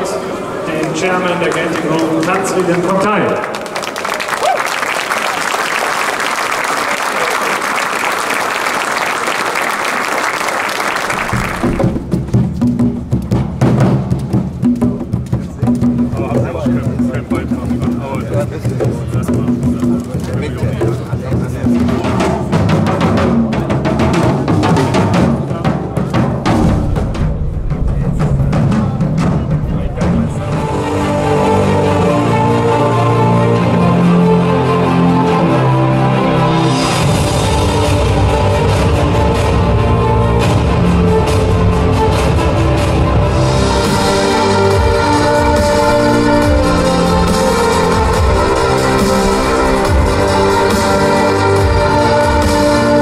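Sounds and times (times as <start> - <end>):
large crowd applauding: 0.6 - 12.0
drums played with sticks and mallets: 11.4 - 31.0.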